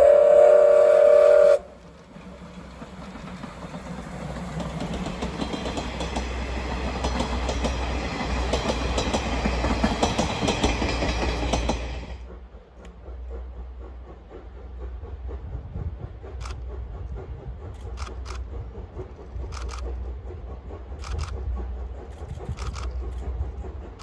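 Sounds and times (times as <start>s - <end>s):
steam locomotive whistle: 0.0s - 1.8s
train wheels clacking over rail joints: 1.8s - 24.0s.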